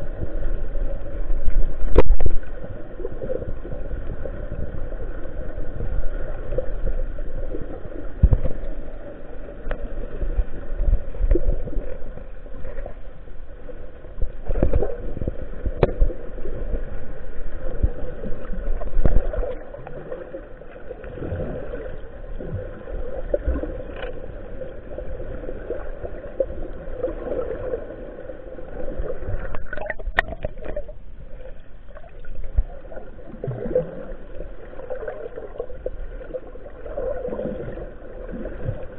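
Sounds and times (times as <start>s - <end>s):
underwater gurgling and sloshing: 0.0s - 38.9s.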